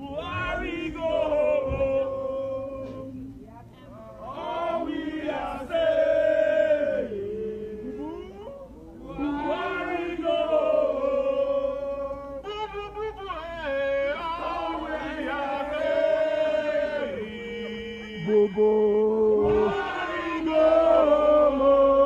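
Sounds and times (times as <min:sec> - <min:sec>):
protesters singing a chant: 0:00.0 - 0:03.3, 0:04.1 - 0:08.1, 0:08.9 - 0:22.0.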